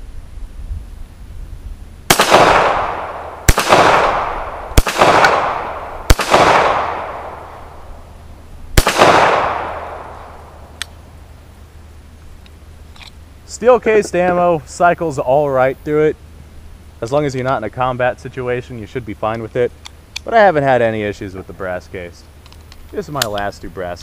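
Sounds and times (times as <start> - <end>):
pistol shots echoing: 2.1 - 7.9, 8.8 - 10.8.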